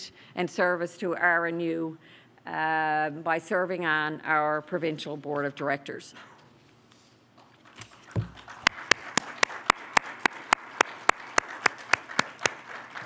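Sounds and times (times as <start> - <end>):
hands clapping: 7.4 - 13.0.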